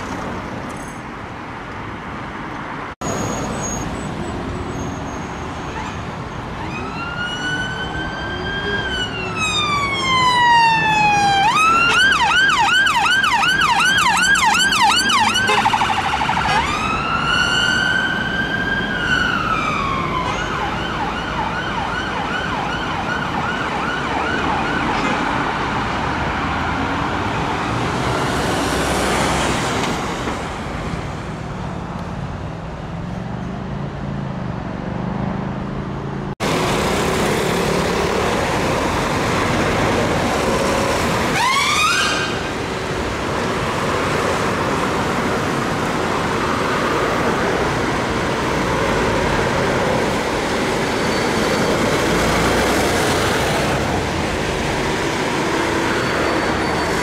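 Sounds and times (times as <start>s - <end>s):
road traffic: 0.0s - 57.0s
siren whoop: 6.6s - 25.0s
siren: 6.6s - 25.6s, 41.3s - 42.5s.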